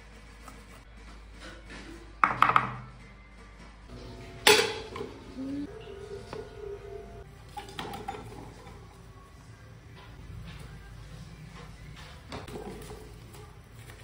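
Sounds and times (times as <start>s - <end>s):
soft background music: 0.0s - 14.0s
metal cookware clink: 4.4s - 5.1s.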